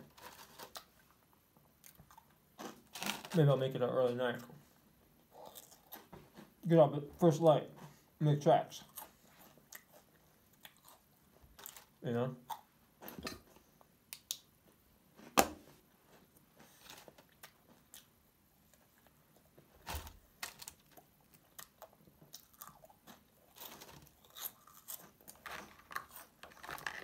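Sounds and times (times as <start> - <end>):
person chewing and crunching: 5.3 - 6.1, 8.8 - 12.7, 20.5 - 27.0
foil wrapper handling: 25.4 - 27.0.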